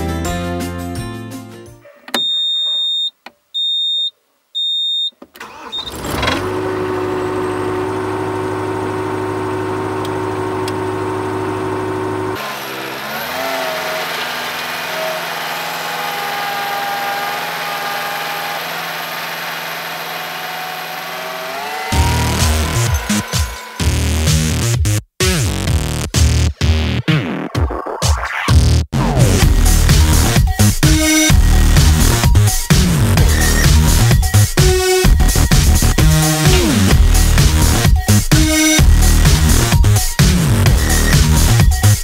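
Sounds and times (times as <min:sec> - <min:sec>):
short high-pitched beeps: 0:02.2 - 0:05.1
vehicle engine idling: 0:06.5 - 0:12.4.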